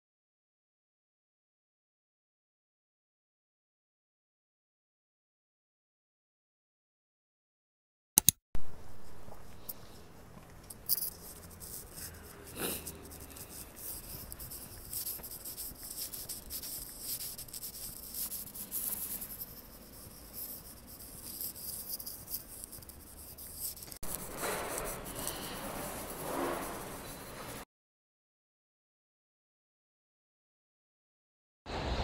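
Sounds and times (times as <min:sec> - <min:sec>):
quiet street ambience: 0:08.6 - 0:22.3, 0:23.0 - 0:27.6
phone microphone rubbing: 0:08.9 - 0:27.6
market hall ambience: 0:24.0 - 0:27.6.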